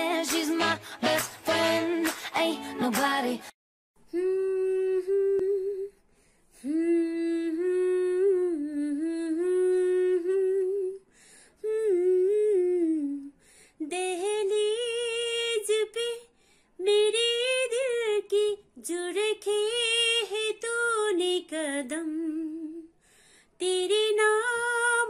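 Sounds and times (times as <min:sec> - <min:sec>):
woman humming: 0:04.1 - 0:06.0.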